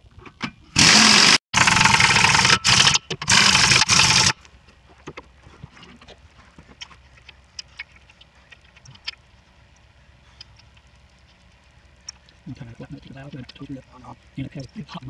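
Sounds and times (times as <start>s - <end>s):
pneumatic impact wrench running: 0.7s - 4.4s.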